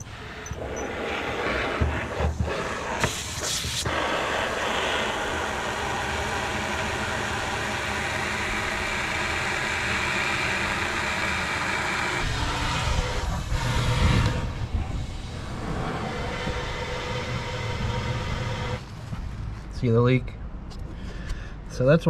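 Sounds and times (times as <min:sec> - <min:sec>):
hose water rushing into metal tank: 0:00.1 - 0:14.6
water spray burst: 0:01.6 - 0:07.5.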